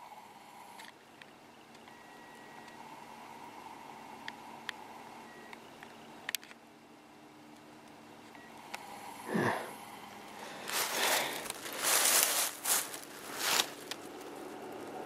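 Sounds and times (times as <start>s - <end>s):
camera handling rustling in brush: 10.6s - 14.2s.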